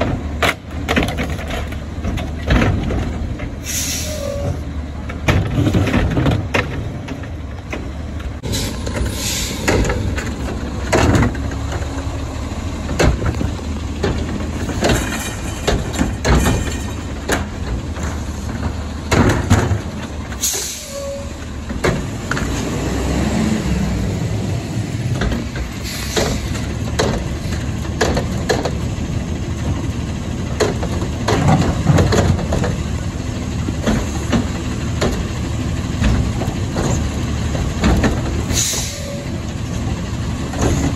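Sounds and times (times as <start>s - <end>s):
plastic carts knocking and clattering: 0.0s - 3.5s, 12.9s - 20.1s, 28.0s - 28.8s, 30.5s - 32.8s
truck diesel engine running: 0.0s - 40.9s.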